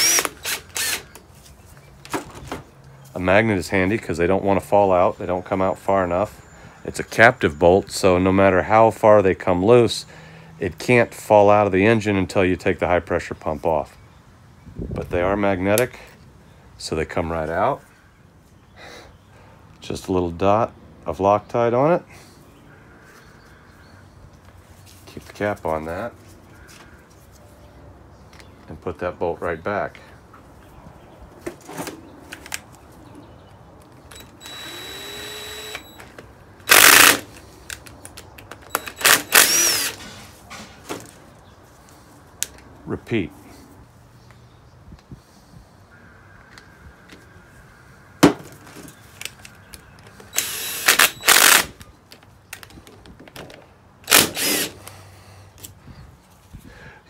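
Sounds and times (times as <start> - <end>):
cordless drill whining: 0.0 - 1.2, 34.1 - 37.2, 38.7 - 40.1, 50.3 - 51.7, 54.1 - 54.8.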